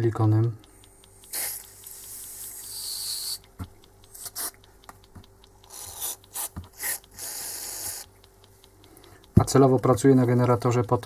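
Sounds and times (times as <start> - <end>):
sharp handling clicks: 0.0 - 11.0
valve ticking rapidly: 0.0 - 11.0
aerosol spray hissing: 1.3 - 3.4, 4.1 - 4.6, 5.7 - 8.1.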